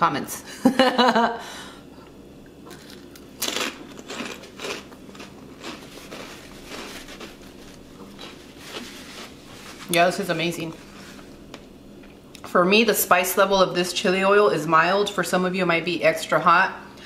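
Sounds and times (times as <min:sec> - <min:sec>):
person crunching a snack: 0:02.6 - 0:09.4.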